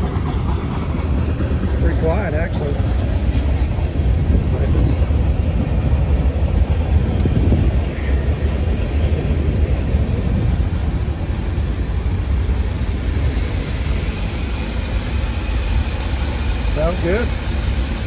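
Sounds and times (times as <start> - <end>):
engine idling with low rumble: 0.0 - 18.0.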